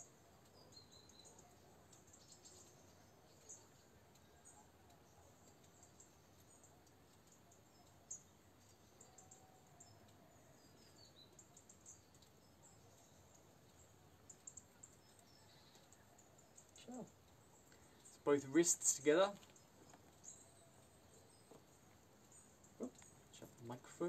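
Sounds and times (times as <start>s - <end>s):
faint high-pitched chirps and ticks: 0.0s - 24.0s.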